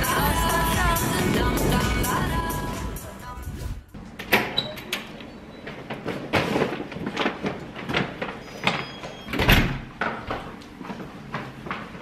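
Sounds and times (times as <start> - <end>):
shopping bags rustling and knocking: 5.6 - 9.2.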